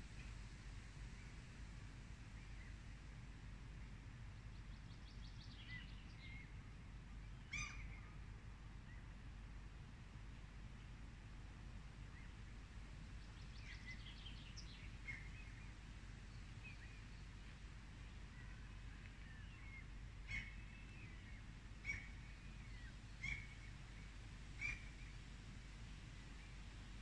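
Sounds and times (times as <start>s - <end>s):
steady low rumble: 0.0s - 27.0s
small birds chirping: 4.4s - 6.6s, 12.1s - 25.3s.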